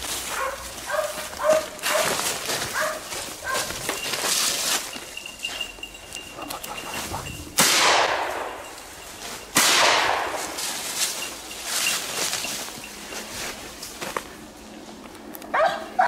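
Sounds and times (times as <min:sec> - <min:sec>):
shotgun shots echoing: 0:07.6 - 0:08.6, 0:09.6 - 0:10.6.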